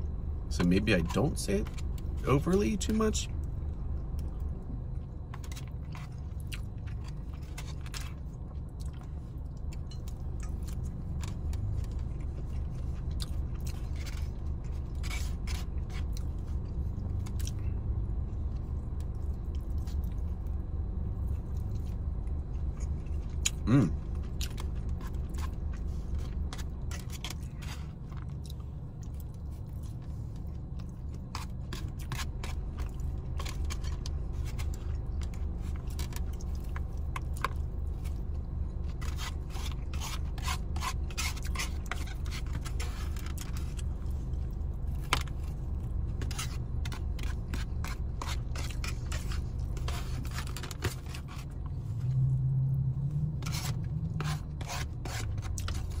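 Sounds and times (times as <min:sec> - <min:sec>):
steady low hum: 0:00.0 - 0:56.0
chewing: 0:03.4 - 0:17.8, 0:21.1 - 0:52.4
plastic fork scraping foam container: 0:38.9 - 0:43.8, 0:46.2 - 0:51.6, 0:53.4 - 0:56.0.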